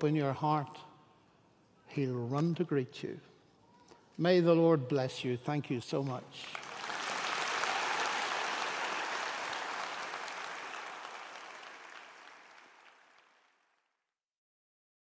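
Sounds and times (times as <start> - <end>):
audience applauding: 6.4 - 13.8.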